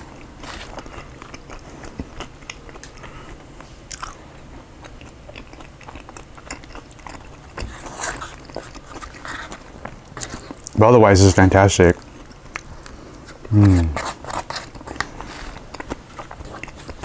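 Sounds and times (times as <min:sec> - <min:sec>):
close-up chewing: 0:00.0 - 0:10.8, 0:11.9 - 0:17.0
fork scraping a bowl: 0:13.6 - 0:15.0.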